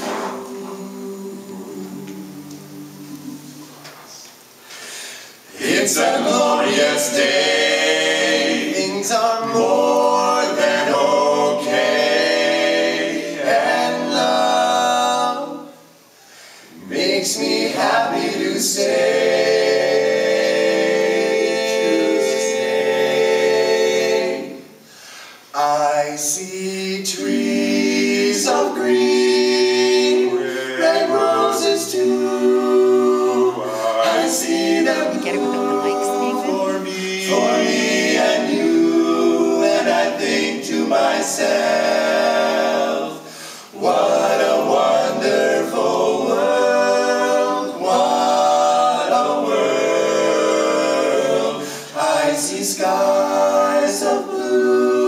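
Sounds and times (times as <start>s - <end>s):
male vocal quartet singing: 0.0s - 4.3s, 5.4s - 15.8s, 16.7s - 55.0s.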